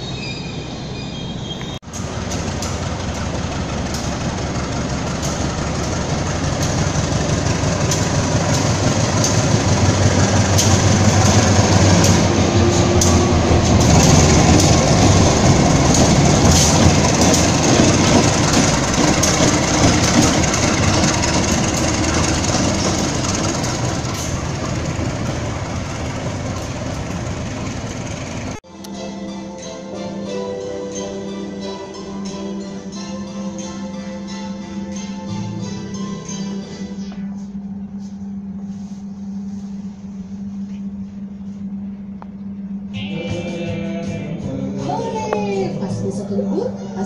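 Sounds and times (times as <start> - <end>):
diesel locomotive engine drone: 0.0 - 47.0
train wheel rumble: 1.6 - 28.6
wheels clicking over rail joints: 1.8 - 28.6.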